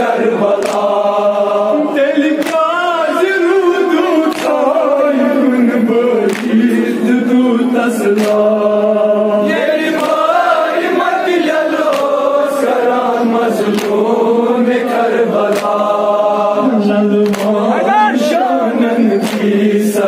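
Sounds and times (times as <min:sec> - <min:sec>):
men chanting a lament: 0:00.0 - 0:20.0
sharp slaps or claps: 0:00.5 - 0:01.0, 0:02.2 - 0:02.9, 0:04.2 - 0:04.8, 0:06.2 - 0:06.7, 0:08.0 - 0:08.7, 0:09.8 - 0:10.6, 0:11.5 - 0:12.5, 0:13.6 - 0:14.2, 0:15.4 - 0:16.0, 0:17.2 - 0:18.0, 0:19.2 - 0:19.8.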